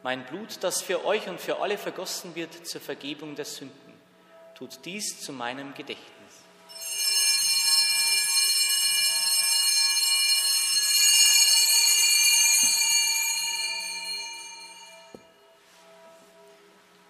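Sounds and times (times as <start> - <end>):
small hand bells jingling: 6.7 - 15.1.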